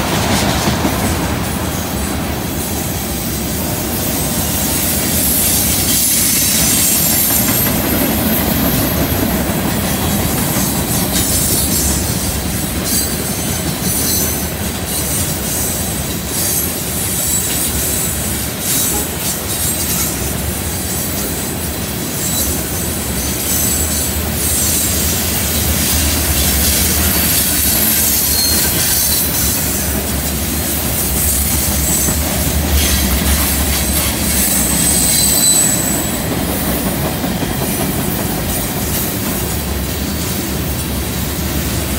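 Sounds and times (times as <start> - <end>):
train wheels rumbling on rail: 0.0 - 41.9
wheel flange squeal: 22.1 - 30.0, 31.2 - 36.4.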